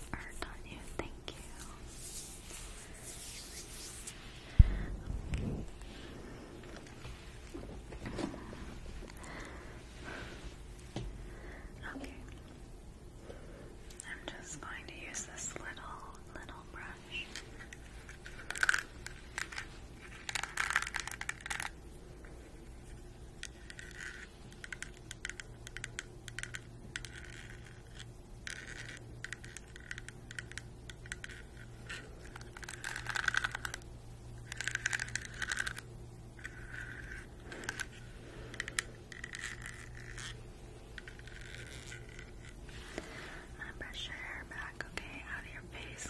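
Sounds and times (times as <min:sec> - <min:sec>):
hairbrush bristles scratching: 0:01.3 - 0:05.9, 0:36.4 - 0:43.2.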